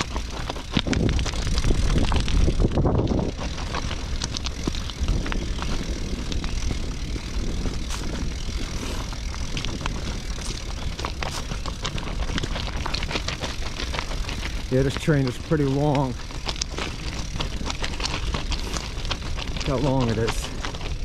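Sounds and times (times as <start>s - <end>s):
train clicks and clanks: 9.4s - 21.0s.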